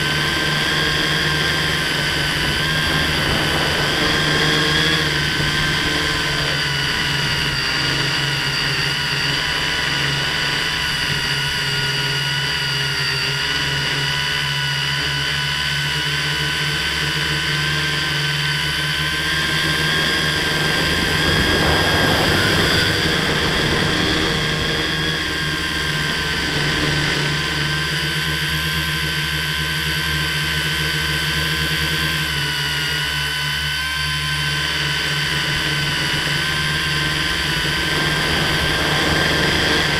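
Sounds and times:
wind noise rush: 0:00.0 - 0:11.6, 0:18.4 - 0:27.8, 0:35.4 - 0:39.9
drone motors whining: 0:00.0 - 0:39.9.

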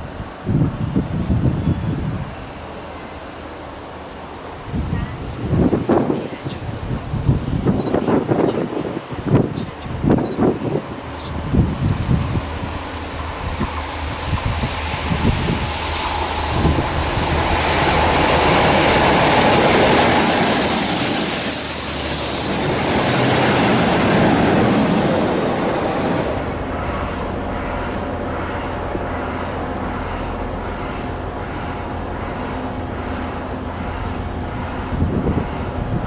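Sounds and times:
wind on microphone: 0:00.0 - 0:02.5, 0:04.6 - 0:26.7, 0:34.0 - 0:36.0
diesel train passing: 0:00.0 - 0:36.0.

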